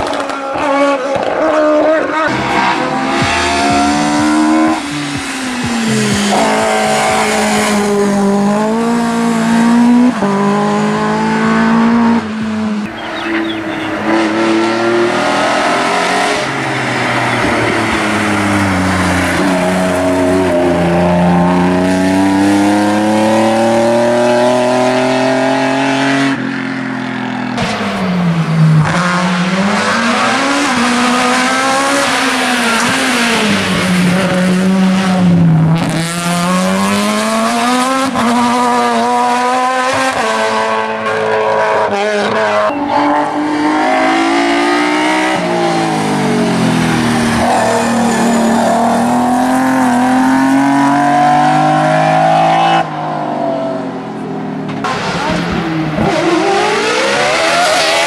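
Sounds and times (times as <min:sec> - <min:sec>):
race car engines at full throttle: 0:00.0 - 0:58.0.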